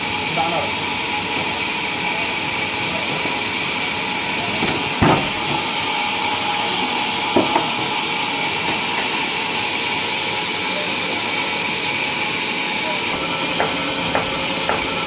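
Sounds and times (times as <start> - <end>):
sawmill machinery hissing and whining: 0.0 - 15.0.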